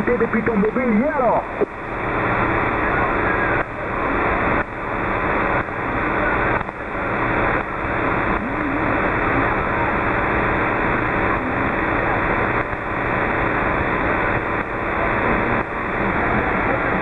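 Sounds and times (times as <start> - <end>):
faint wavering radio tones: 0.0 - 17.0
radio static hiss: 0.0 - 17.0.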